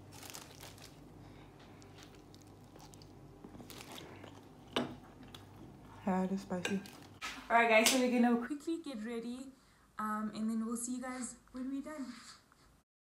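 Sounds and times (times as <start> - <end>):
person chewing food: 0.1 - 6.0.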